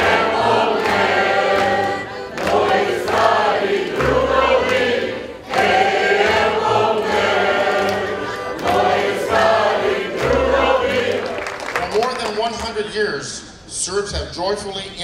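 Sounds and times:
folk ensemble playing: 0.0 - 11.6
mixed choir singing: 0.0 - 11.6.

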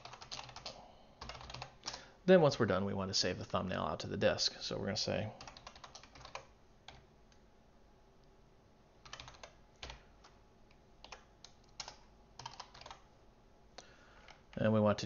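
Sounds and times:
computer keyboard typing: 0.0 - 1.8, 5.4 - 7.4, 9.0 - 10.4, 11.0 - 13.1.

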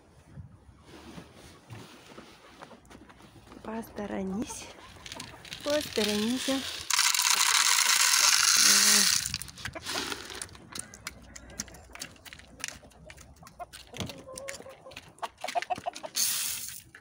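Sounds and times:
chickens pecking grain: 1.5 - 17.0
hen clucking: 3.9 - 6.6, 9.4 - 16.2
grain poured into metal pan: 5.0 - 10.4, 16.2 - 16.8.

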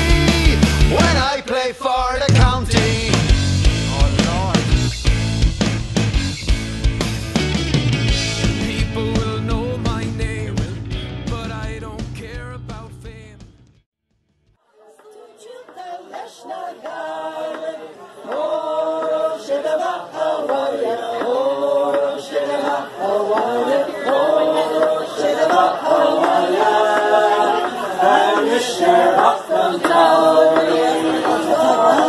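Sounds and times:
choir singing unaccompanied: 14.7 - 32.0.

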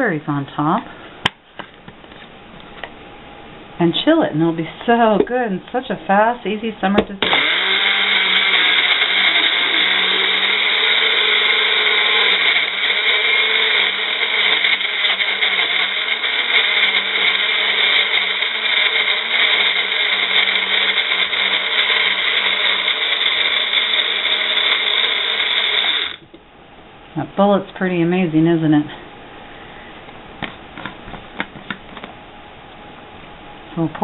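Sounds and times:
blender motor running: 7.2 - 26.2.

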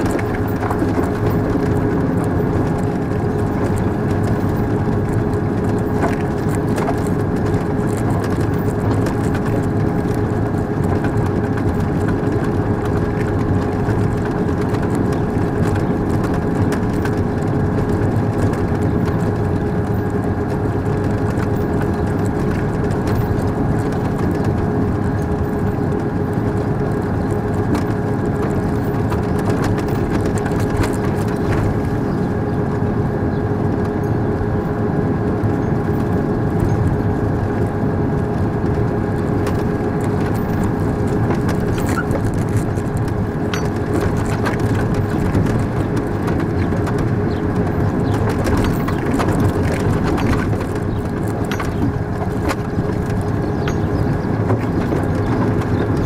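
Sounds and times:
drivetrain whine: 0.0 - 56.0
military vehicle engine rumble: 0.0 - 56.0.

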